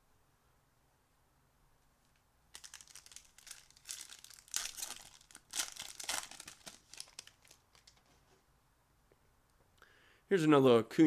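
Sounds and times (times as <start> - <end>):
foil wrapper crinkling and tearing: 2.5 - 8.0.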